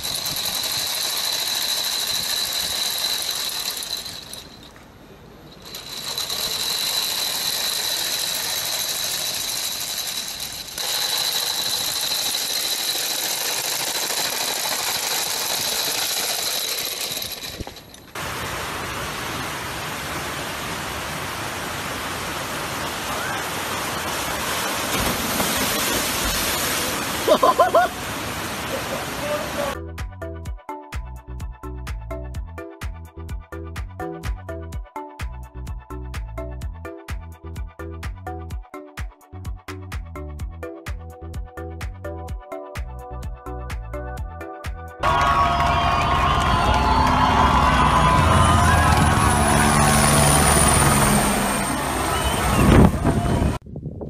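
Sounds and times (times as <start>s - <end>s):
wheels rattling on stone paving: 0.0s - 4.8s, 5.4s - 18.2s
water pouring down a spillway: 18.2s - 29.8s.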